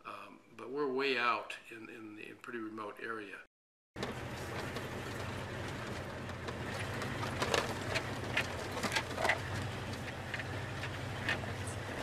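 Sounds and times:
knocks and rattles: 4.0 - 12.0
truck engine droning: 4.0 - 12.0.

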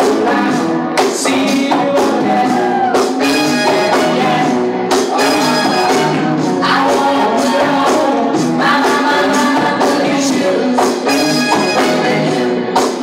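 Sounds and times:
funk dance music with singing: 0.0 - 13.0.

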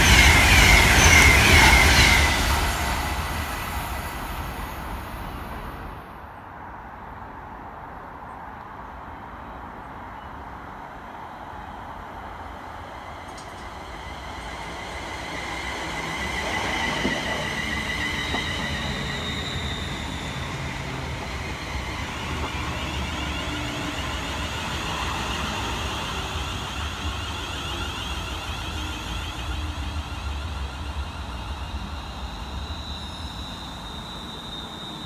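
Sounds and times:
wheels rumbling on rail: 0.0 - 6.3, 11.1 - 35.0.

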